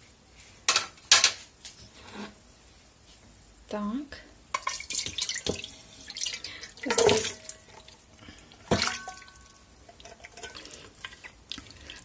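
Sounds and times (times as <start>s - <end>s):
liquid pouring and splashing: 4.6s - 12.0s.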